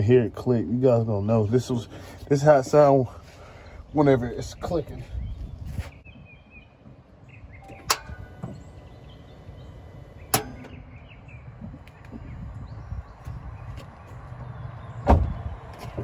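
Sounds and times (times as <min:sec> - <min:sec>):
car starter clicking: 0:07.6 - 0:11.2.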